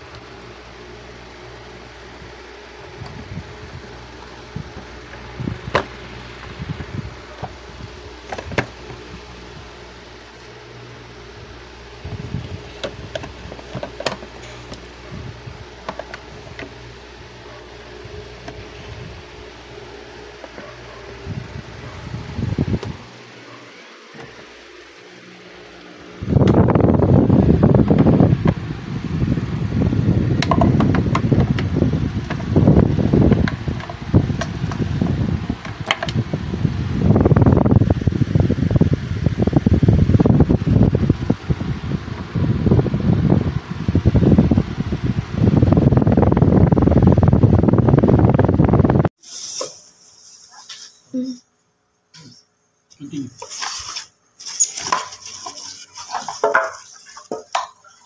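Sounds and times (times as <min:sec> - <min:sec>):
low mechanical hum: 0:00.0 - 0:58.0
uneven rumbling on microphone: 0:02.2 - 0:10.0, 0:11.3 - 0:23.2.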